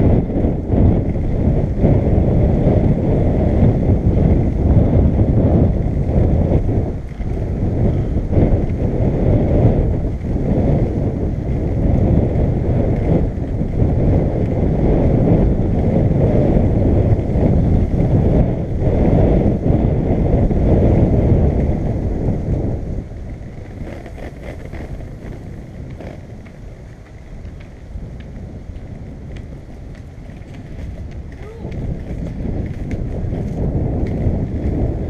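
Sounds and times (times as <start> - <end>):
skateboard wheels rolling on bricks: 0.0 - 35.0
wind buffeting microphone: 0.0 - 35.0.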